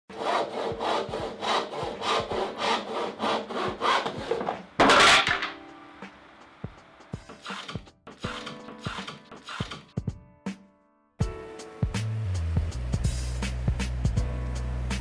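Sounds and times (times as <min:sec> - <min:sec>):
hand saw cutting wood: 0:00.1 - 0:05.6, 0:07.4 - 0:09.9.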